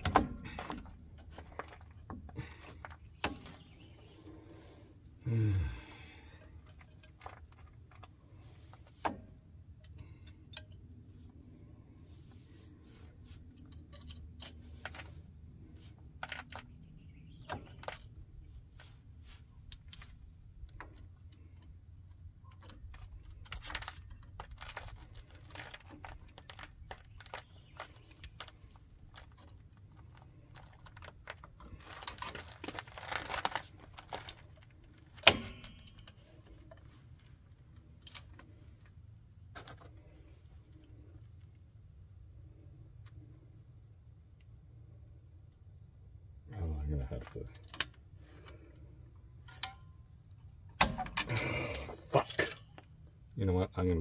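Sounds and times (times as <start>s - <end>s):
rustling and clatter: 0.0s - 5.0s, 6.3s - 10.4s, 11.1s - 41.6s
metallic clicks of tools: 13.6s - 14.7s.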